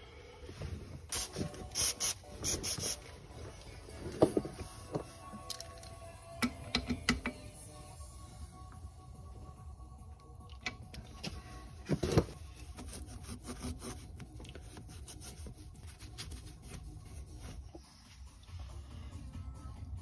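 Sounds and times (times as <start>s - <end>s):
handling and rubbing noises: 11.2s - 17.8s.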